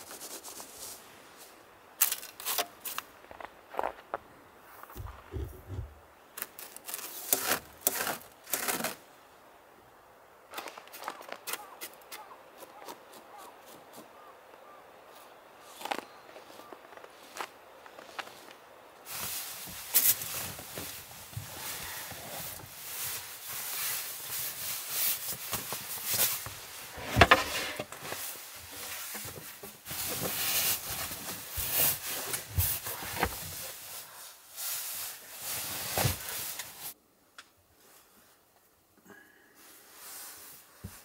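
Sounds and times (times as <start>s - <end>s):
sleeping bag fabric rustling: 19.1s - 37.0s.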